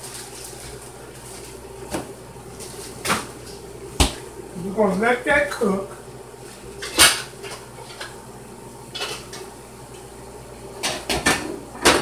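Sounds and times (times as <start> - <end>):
dishes and utensils clattering: 8.9 - 9.5.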